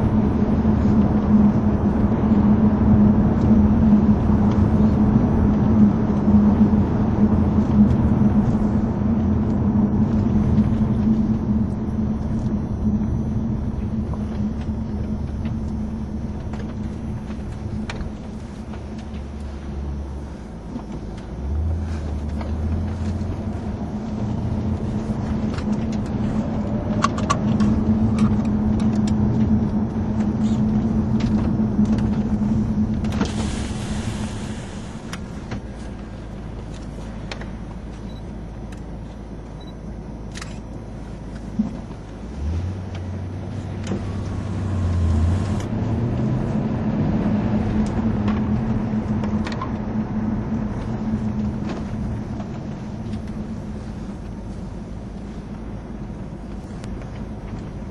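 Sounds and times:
car engine from inside cabin: 0.0 - 57.9
road noise: 0.0 - 57.9
loud hiss: 33.3 - 35.1.

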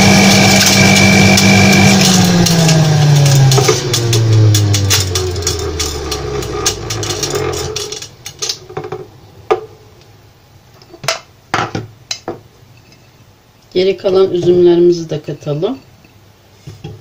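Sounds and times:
juicer motor spinning down: 0.0 - 8.1
spinning basket clicking and rattling: 0.4 - 8.6.

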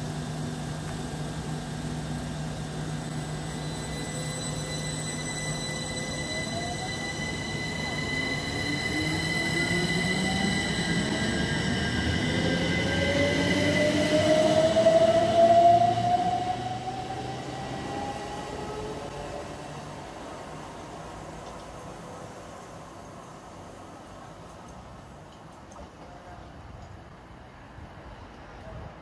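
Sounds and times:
train traction motors whining: 2.7 - 19.4.

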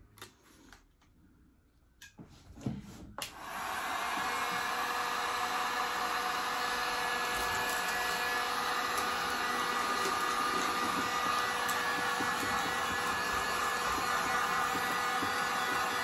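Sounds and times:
heat gun blowing air: 3.3 - 16.0.

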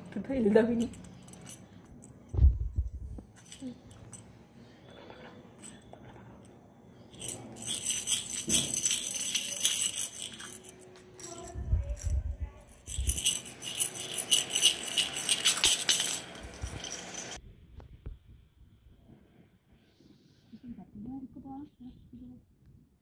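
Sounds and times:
jingle-ball toys jingling: 0.4 - 4.4, 5.6 - 17.4.

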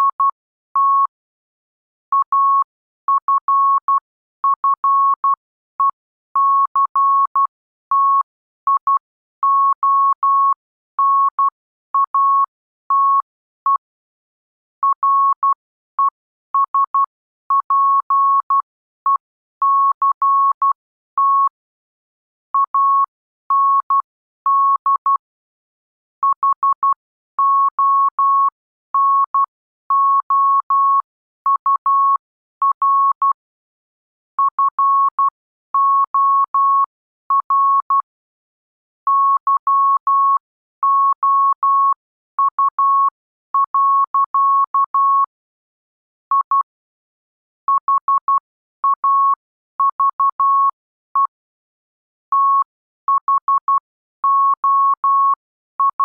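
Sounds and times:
morse code beeps: 46.3 - 46.8, 47.7 - 51.4, 52.3 - 56.0.

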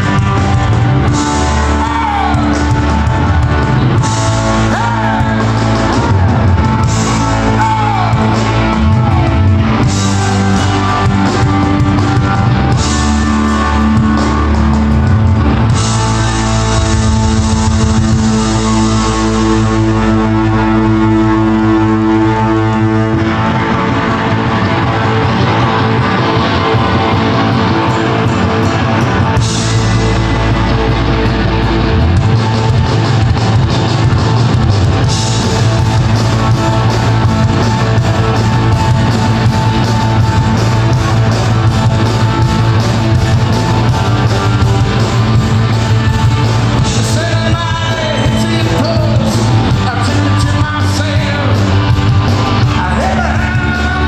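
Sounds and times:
live rock band: 0.0 - 54.0
person singing: 46.8 - 51.9, 52.6 - 54.0.

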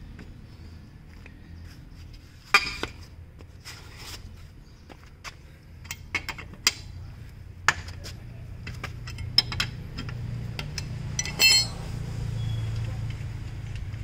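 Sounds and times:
wrench clinking on wheel nuts: 9.0 - 11.8
ringing metallic clatter: 11.2 - 11.9.

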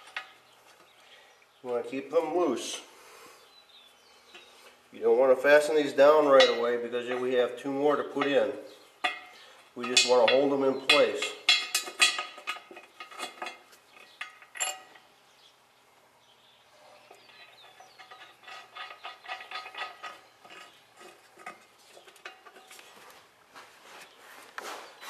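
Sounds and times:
metal nuts and washers clinking: 6.2 - 7.4, 8.0 - 15.1, 16.9 - 22.7.

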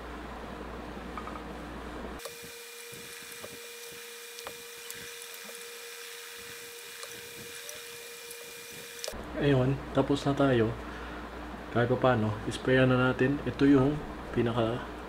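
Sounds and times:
steady whine with hiss: 0.0 - 15.0.

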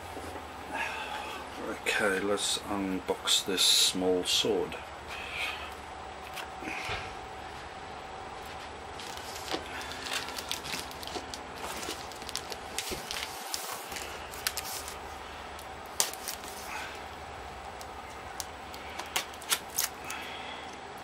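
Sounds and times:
electric fan running: 0.0 - 21.0
cardboard box crackling and scraping: 9.0 - 15.0.

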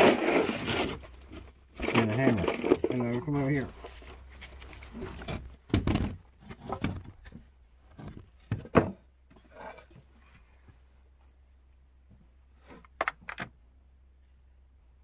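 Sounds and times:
wooden pieces knocking and clattering: 1.0 - 10.0, 12.8 - 13.6.

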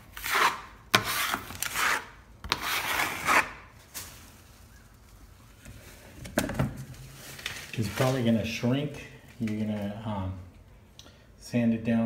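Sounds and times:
blade scraping compound on wall: 0.0 - 3.7.

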